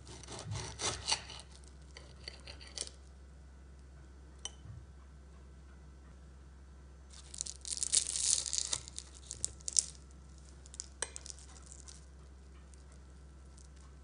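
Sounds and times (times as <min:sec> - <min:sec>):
pastry crackling under cutlery: 0:00.0 - 0:03.1, 0:07.1 - 0:14.0.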